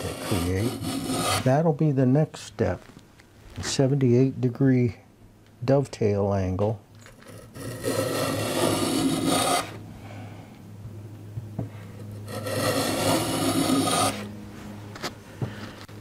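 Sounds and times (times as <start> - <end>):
hand plane shaving wood: 0.0 - 1.5, 7.3 - 9.8, 12.1 - 14.3.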